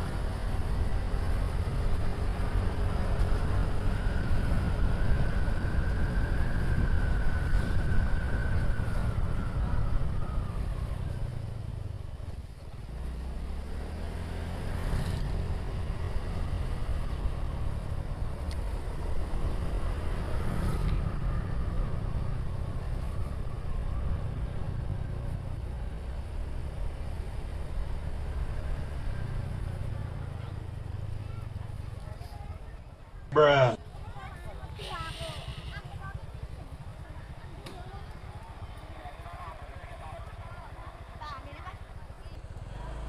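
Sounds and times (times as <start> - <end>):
wind rumbling on microphone: 0.0 - 12.8.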